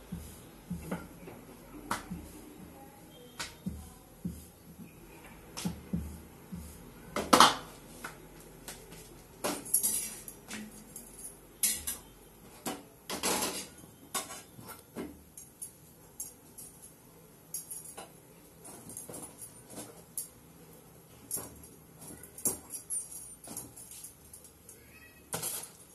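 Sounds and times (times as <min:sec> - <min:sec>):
metal utensils and pans clinking: 0:09.4 - 0:12.1, 0:13.1 - 0:14.6, 0:25.3 - 0:25.9.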